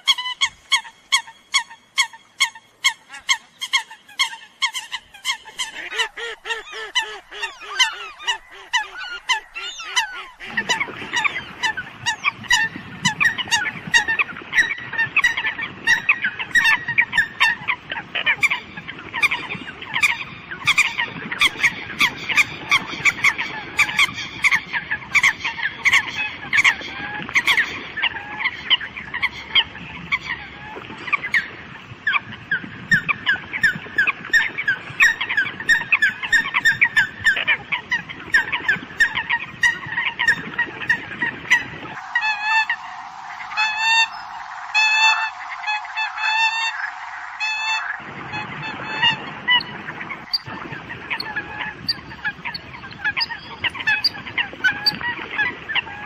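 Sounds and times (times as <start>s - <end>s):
coots honking calls: 40.9s - 49.6s.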